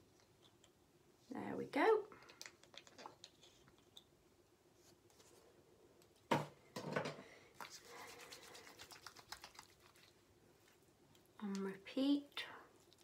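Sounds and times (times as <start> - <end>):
hands rubbing together: 7.6 - 10.2.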